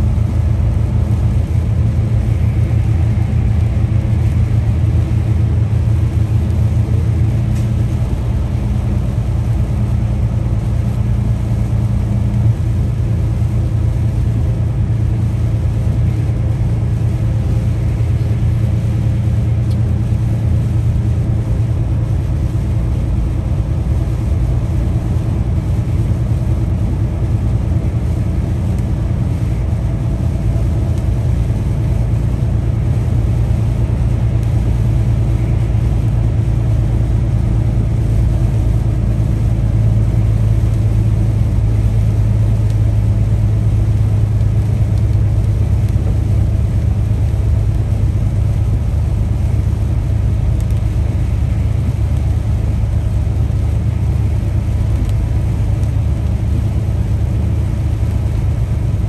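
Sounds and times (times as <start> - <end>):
truck diesel engine droning: 0.0 - 59.0
tyre and road noise: 0.0 - 59.0.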